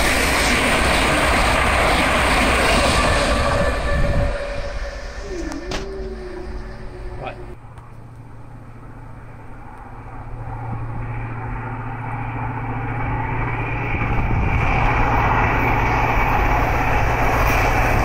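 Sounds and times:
train running: 0.0s - 18.0s.

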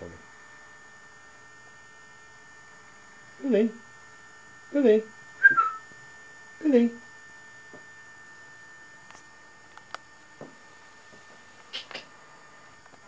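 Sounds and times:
electrical hum: 0.0s - 13.0s
woman calling a cat: 6.6s - 7.0s.

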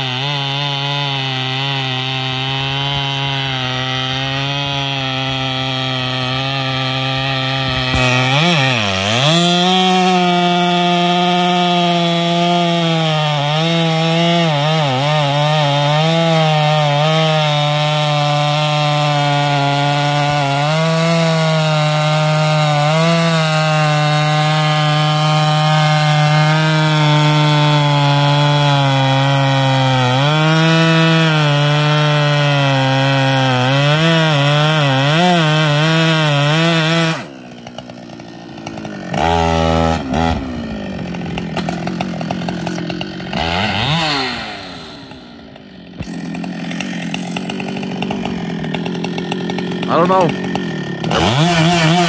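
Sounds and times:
chainsaw cutting log: 0.0s - 52.0s
chainsaw idling and revving: 0.0s - 52.0s.

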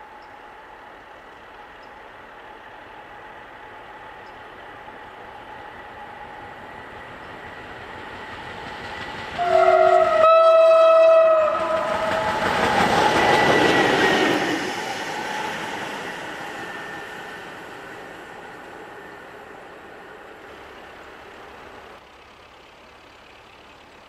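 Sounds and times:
locomotive engine and wheels passing: 0.0s - 24.0s
locomotive horn blast: 9.4s - 13.1s.

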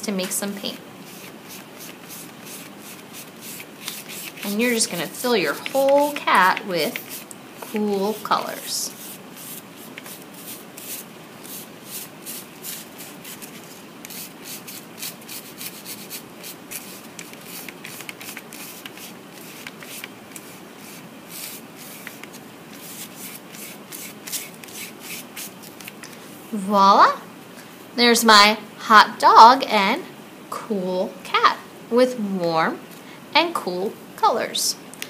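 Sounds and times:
paintbrush scrubbing on paper: 1.0s - 26.0s.

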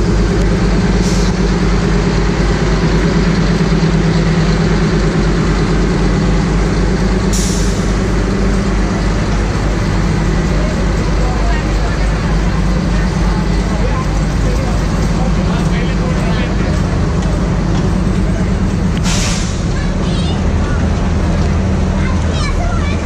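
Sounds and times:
diesel locomotive engine running: 0.0s - 23.0s
short hisses: 19.0s - 19.7s.

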